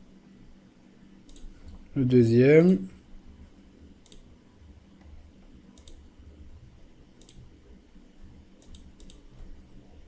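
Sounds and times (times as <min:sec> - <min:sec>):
room hum: 0:00.0 - 0:10.0
computer mouse clicks: 0:01.2 - 0:01.8, 0:04.0 - 0:04.3, 0:05.0 - 0:06.1, 0:07.2 - 0:07.5, 0:08.6 - 0:09.5.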